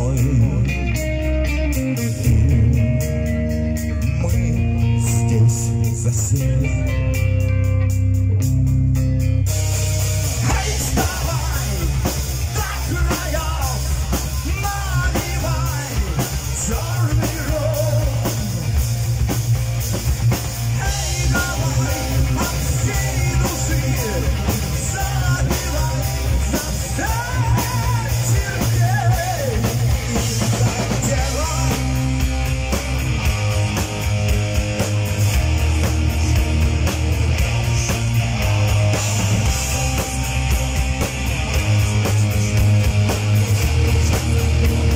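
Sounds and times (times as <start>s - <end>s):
man singing lead vocal: 0.0s - 1.2s, 1.9s - 7.4s, 10.3s - 18.8s, 20.7s - 32.4s, 41.5s - 44.9s
heavy metal band playing: 0.0s - 44.9s.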